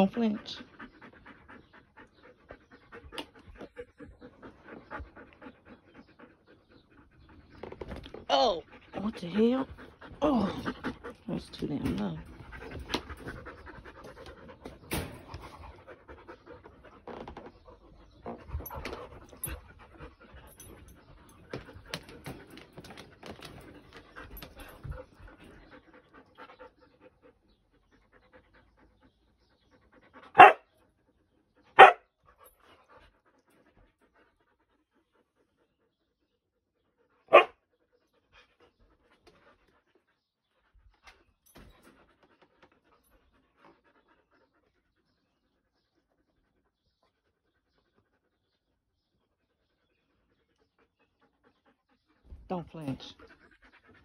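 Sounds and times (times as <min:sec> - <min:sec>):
dogs panting: 0:00.0 - 0:54.0
dog barking: 0:30.4 - 0:30.7, 0:31.8 - 0:32.0, 0:37.3 - 0:37.6.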